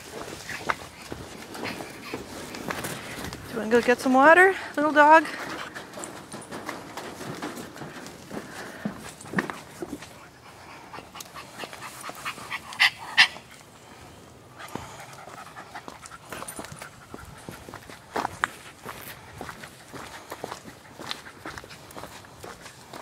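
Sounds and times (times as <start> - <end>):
dog panting: 0.0 - 3.4, 5.3 - 13.6, 14.5 - 23.0
rustling: 0.0 - 10.4
footsteps: 0.0 - 12.6, 14.7 - 23.0.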